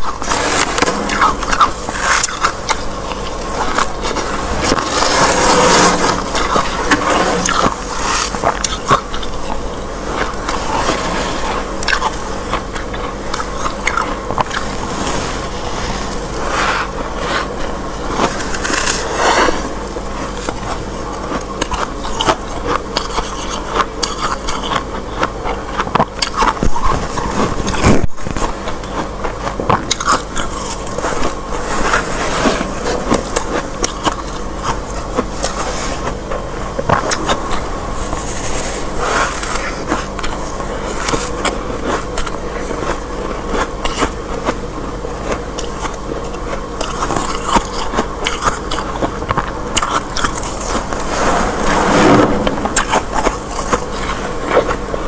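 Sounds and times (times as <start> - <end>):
fingers scraping frost: 4.4 - 8.4.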